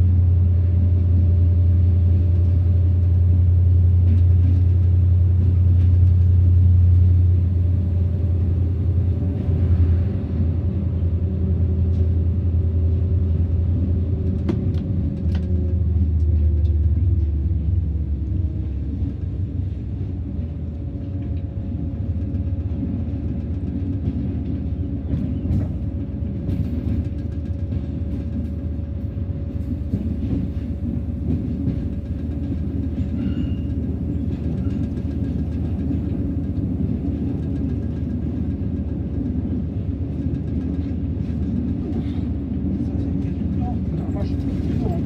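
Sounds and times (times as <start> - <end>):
diesel locomotive engine drone: 0.0 - 45.0.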